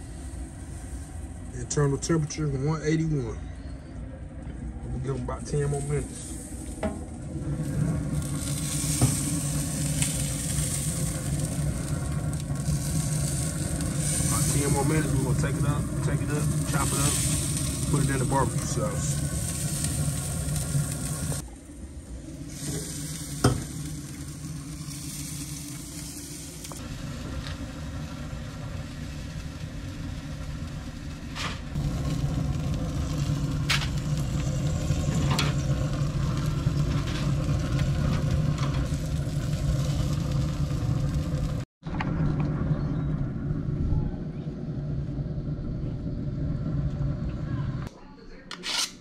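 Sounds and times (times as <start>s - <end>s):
low hum: 0.0s - 48.0s
meat sizzling on grates: 7.5s - 21.4s, 22.4s - 31.0s, 31.7s - 41.6s.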